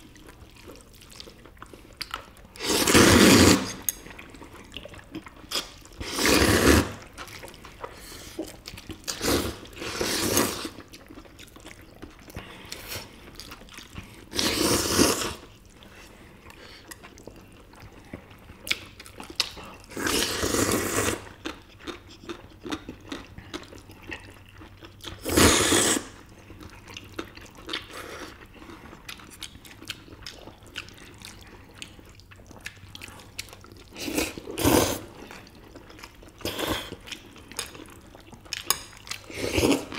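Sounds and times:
wet chewing: 0.0s - 39.9s
people slurping noodles: 2.6s - 3.9s, 6.0s - 7.1s, 9.1s - 10.8s, 14.3s - 15.5s, 19.9s - 21.2s, 25.2s - 26.2s.

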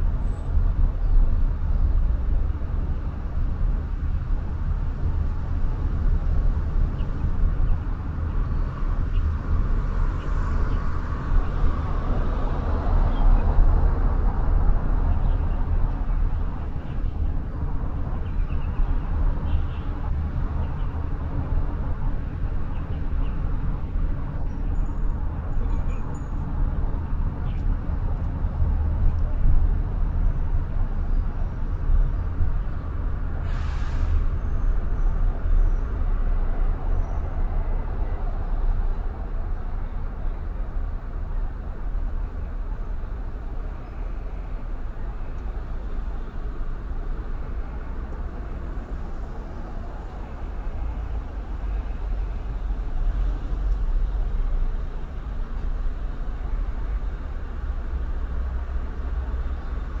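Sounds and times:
road rumble: 0.0s - 60.0s
short hiss: 33.4s - 34.2s.

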